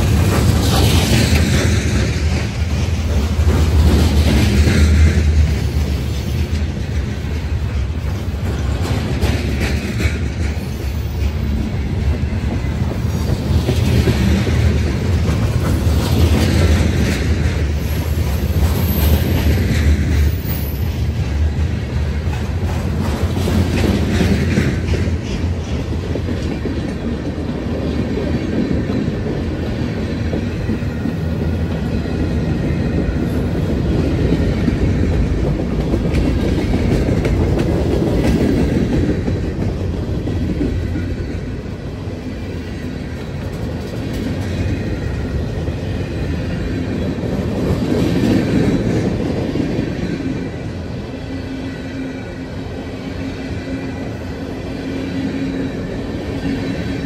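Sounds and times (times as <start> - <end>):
wheels clacking over rails: 0.0 - 41.6
freight train rumbling past: 0.0 - 57.0.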